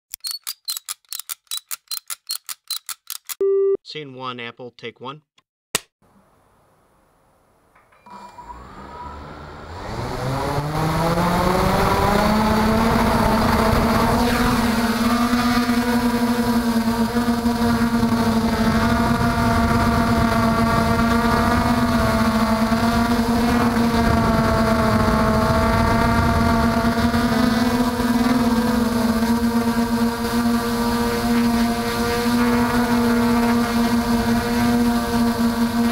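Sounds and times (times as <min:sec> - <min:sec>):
drone propellers humming: 0:08.5 - 0:35.9.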